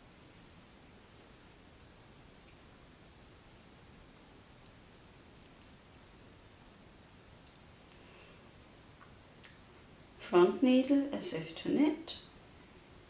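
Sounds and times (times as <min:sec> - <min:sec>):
room hiss: 0:00.0 - 0:13.0
metal knitting needles clicking: 0:04.5 - 0:06.1.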